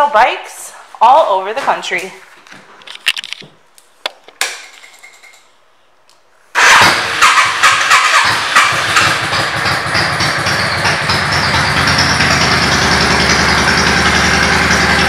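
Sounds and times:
motorcycle engine revving and idling: 6.6s - 15.0s.

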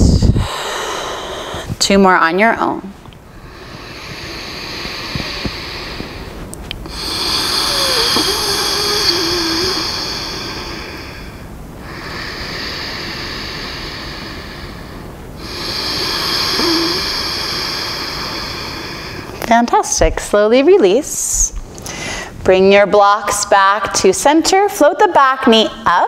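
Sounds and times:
woman breathing deeply: 0.0s - 1.8s, 3.2s - 19.4s, 21.8s - 22.4s.

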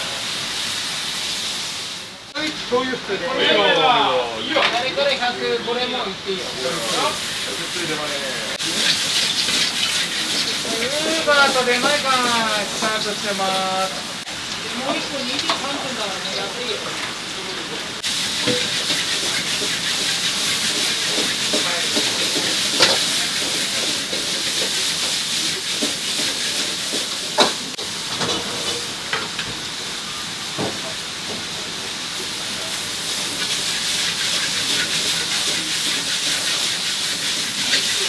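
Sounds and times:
stir-fry sizzling in a wok: 0.0s - 38.0s
utensil clanking against pan: 18.4s - 28.8s.

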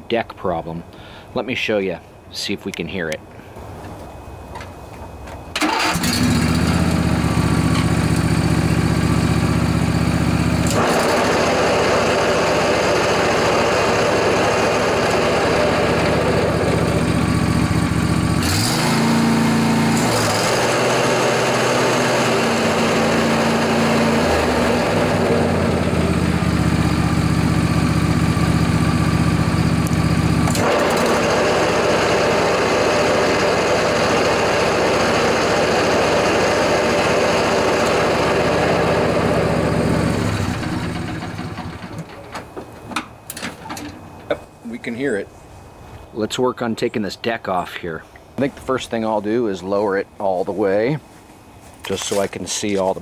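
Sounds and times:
riding mower engine running: 5.2s - 45.0s
mower deck bearing noise: 7.6s - 8.4s.

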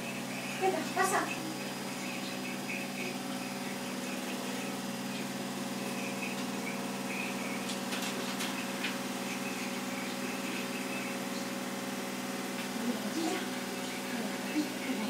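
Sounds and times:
small motor humming: 0.0s - 15.0s.

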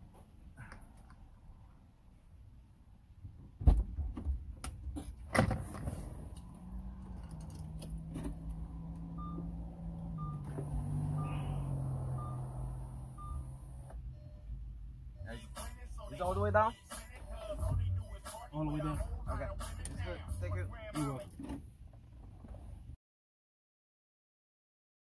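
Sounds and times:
power window motor humming: 7.7s - 13.9s
electronic warning chime beeping: 9.1s - 15.6s.

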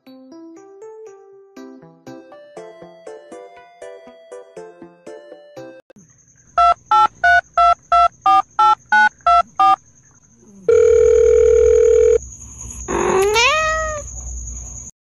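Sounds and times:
telephone keypad touch-tones: 6.6s - 9.8s
steady telephone tone: 10.7s - 12.2s
cat meowing: 12.9s - 14.1s.

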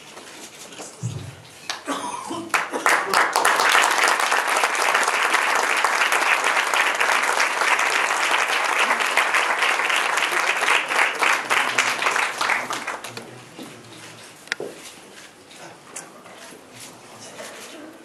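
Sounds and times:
audience applauding: 2.5s - 13.2s.

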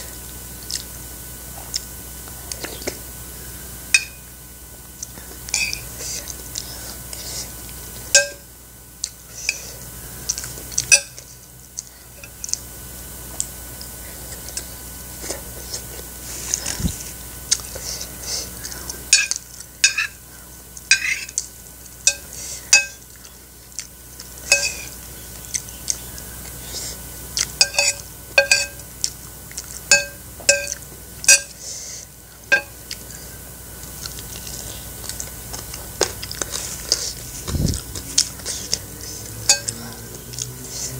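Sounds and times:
spoon clinking on ceramic plate: 24.5s - 24.8s, 27.6s - 28.8s, 29.9s - 31.5s, 39.5s - 39.8s.

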